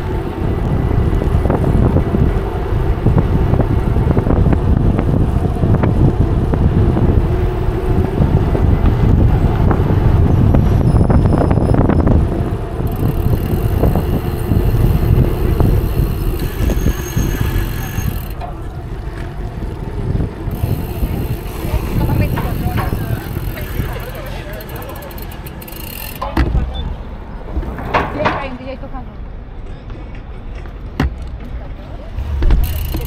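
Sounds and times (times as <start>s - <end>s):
wind buffeting microphone: 0.0s - 29.6s, 31.8s - 33.0s
short clicks and rattles: 20.5s - 26.4s, 32.5s - 33.0s.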